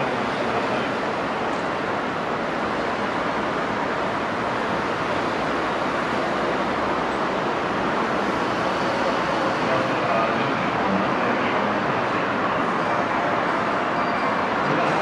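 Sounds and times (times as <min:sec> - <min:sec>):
station platform rushing noise: 0:00.0 - 0:15.0.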